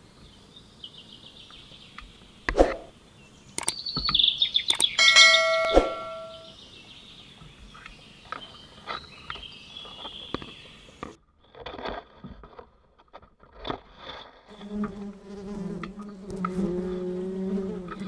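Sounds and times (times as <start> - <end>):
bees buzzing: 14.5 - 18.0.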